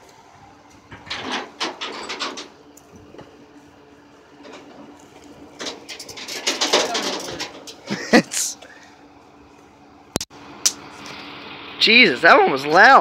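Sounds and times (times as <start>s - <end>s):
tow truck engine hum: 0.0s - 13.0s
metal clanks and rattles: 0.9s - 3.4s, 4.4s - 8.4s.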